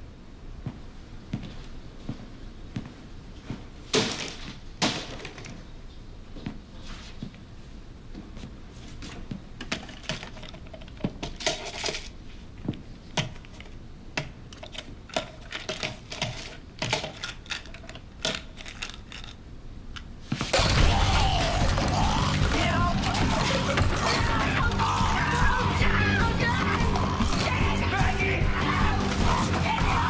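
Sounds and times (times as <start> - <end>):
plastic pill bottles clicking: 13.1 - 25.6.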